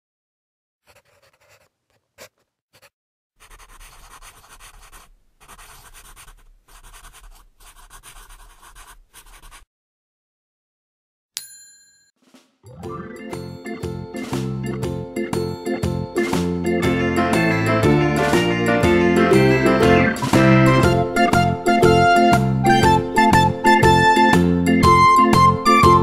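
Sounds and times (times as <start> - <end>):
pencil scratching on paper: 0.8 - 9.7
bright ringing ding: 11.4 - 12.1.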